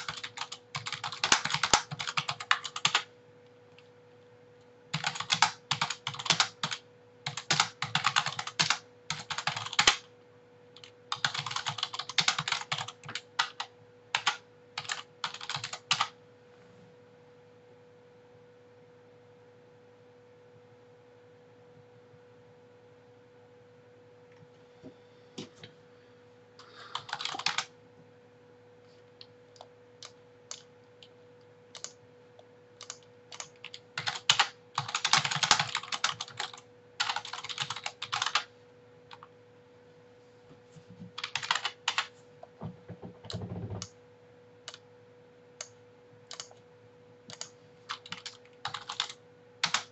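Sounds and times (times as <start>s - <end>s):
typing on computer keyboard: 0.0s - 3.1s, 4.9s - 10.1s, 10.8s - 16.2s, 26.6s - 27.7s, 29.5s - 31.1s, 31.8s - 32.0s, 32.8s - 38.5s, 41.2s - 42.1s, 45.6s - 46.6s, 47.3s - 49.9s
faint steady hum: 0.0s - 49.9s.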